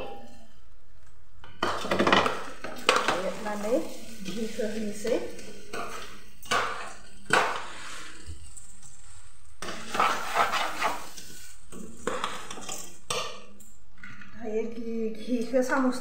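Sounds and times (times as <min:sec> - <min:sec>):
metal spoon scraping pot: 0:01.6 - 0:13.2.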